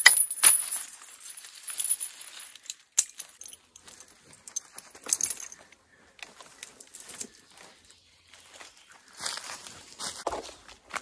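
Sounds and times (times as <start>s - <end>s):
keys jingling: 0.0s - 3.8s, 4.4s - 5.6s.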